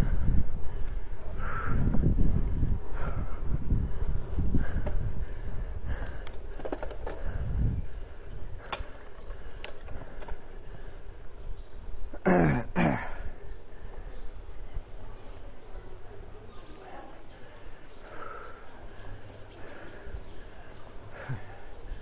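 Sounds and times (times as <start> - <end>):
wind buffeting microphone: 0.0 - 12.2
grunting exhalations: 12.2 - 13.4.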